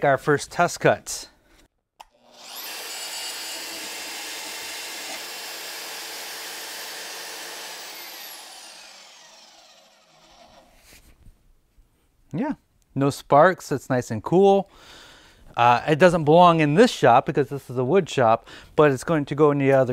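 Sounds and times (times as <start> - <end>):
band saw cutting steel: 2.2 - 10.8.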